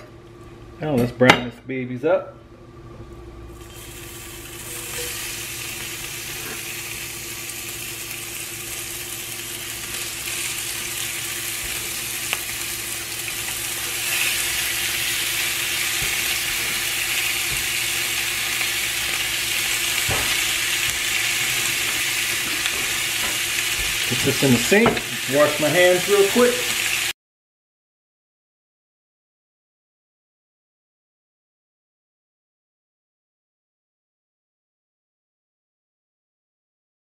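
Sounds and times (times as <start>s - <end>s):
bacon sizzling in a skillet: 3.5s - 27.2s.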